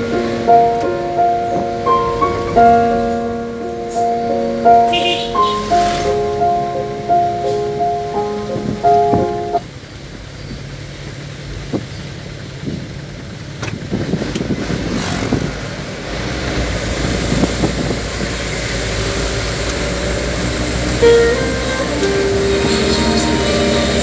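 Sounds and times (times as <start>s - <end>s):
music: 0.0s - 9.6s, 21.0s - 24.0s
road and engine rumble: 0.0s - 24.0s.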